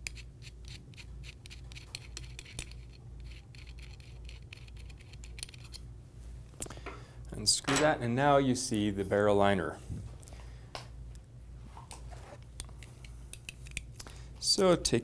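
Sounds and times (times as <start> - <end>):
wrench metallic clicks and scratches: 0.0 - 5.8.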